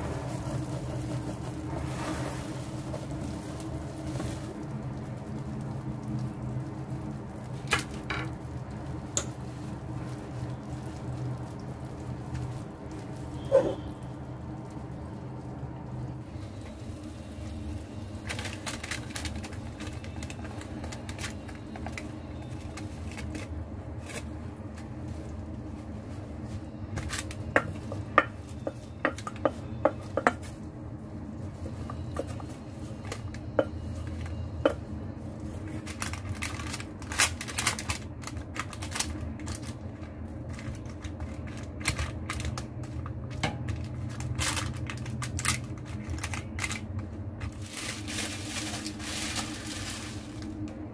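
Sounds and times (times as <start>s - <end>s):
wooden spoon scraping a pot: 0.0s - 4.5s
steady low hum: 0.0s - 50.9s.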